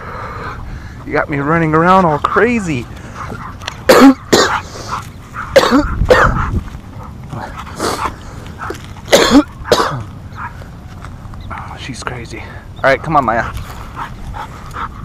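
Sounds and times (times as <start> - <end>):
dog barking and yelping: 2.2 - 10.7.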